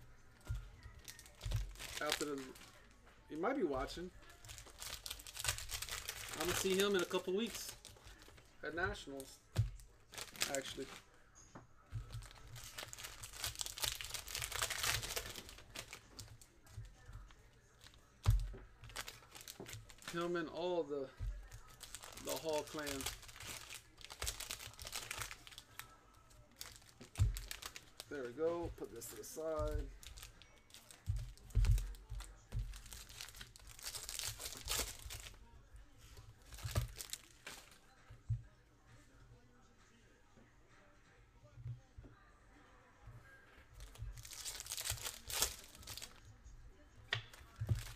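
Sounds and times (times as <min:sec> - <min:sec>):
plastic wrappers crinkling and tearing: 0:00.0 - 0:03.0, 0:03.7 - 0:11.1, 0:11.9 - 0:35.4, 0:36.1 - 0:37.8, 0:43.7 - 0:46.4, 0:47.1 - 0:47.9
packs thumping on table: 0:26.6 - 0:28.0, 0:36.5 - 0:37.7.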